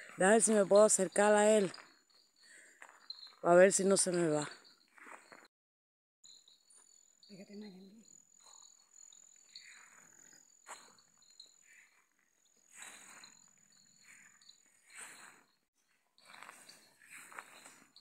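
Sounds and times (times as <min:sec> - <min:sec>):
high-pitched insect trill: 0:00.2 - 0:05.5, 0:06.2 - 0:15.6, 0:16.2 - 0:18.0
footsteps through grass and dirt: 0:12.7 - 0:18.0.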